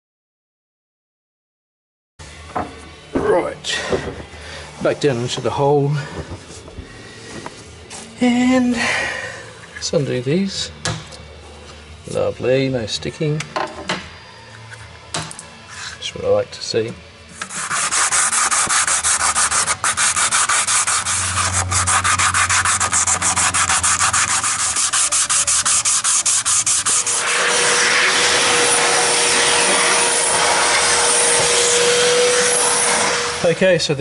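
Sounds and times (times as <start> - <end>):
hand sanding: 17.4 - 33.5
vacuum cleaner running: 18.0 - 34.0.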